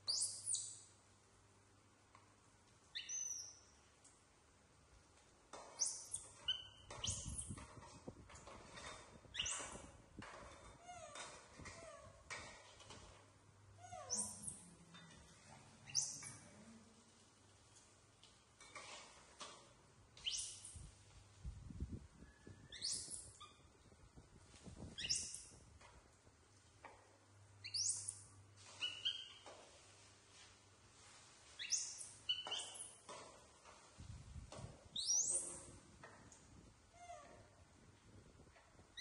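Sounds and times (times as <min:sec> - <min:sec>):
baby monkeys squeaking: 0:00.0 - 0:00.8, 0:02.9 - 0:03.6, 0:05.8 - 0:07.6, 0:09.3 - 0:09.8, 0:13.8 - 0:14.7, 0:15.9 - 0:16.4, 0:20.2 - 0:20.8, 0:22.4 - 0:23.7, 0:24.8 - 0:25.6, 0:27.6 - 0:29.5, 0:31.6 - 0:33.0, 0:35.0 - 0:35.7.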